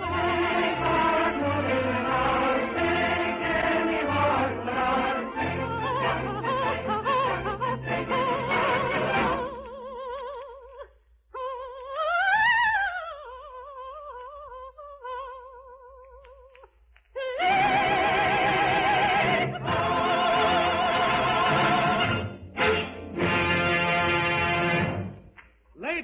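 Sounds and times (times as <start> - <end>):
orchestra playing: 0.0 - 9.5, 19.5 - 25.3
soprano singing operatically: 0.0 - 22.2.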